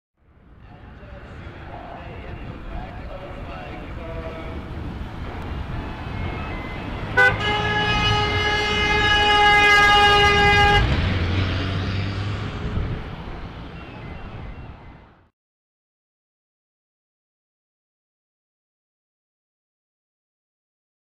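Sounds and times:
road noise: 0:00.2 - 0:15.3
truck engine rumble: 0:00.2 - 0:15.3
truck horn blast: 0:07.0 - 0:12.2.

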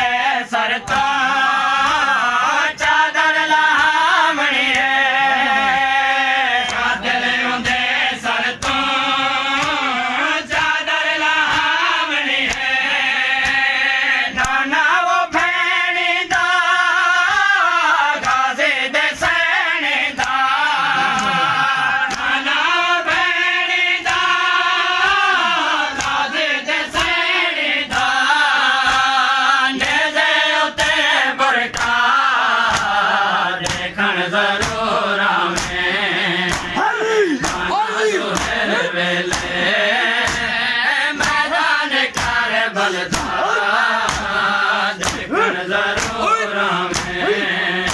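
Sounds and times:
men chanting in unison: 0:00.0 - 0:47.9
lead voice chanting: 0:18.9 - 0:30.3, 0:31.0 - 0:47.9
hand slaps on chest: 0:20.1 - 0:20.4, 0:25.9 - 0:26.3, 0:32.7 - 0:33.0, 0:33.6 - 0:33.9, 0:35.6 - 0:35.8, 0:36.5 - 0:37.7, 0:38.3 - 0:38.7, 0:39.3 - 0:39.6, 0:40.2 - 0:40.5, 0:41.2 - 0:41.5, 0:42.1 - 0:42.4, 0:43.1 - 0:44.4, 0:45.0 - 0:47.9.

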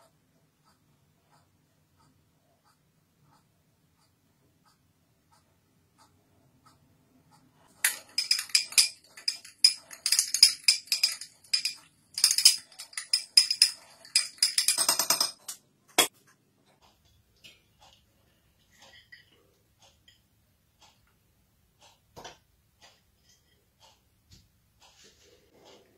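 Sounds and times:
teaspoon clinking in glass: 0:07.8 - 0:15.3.

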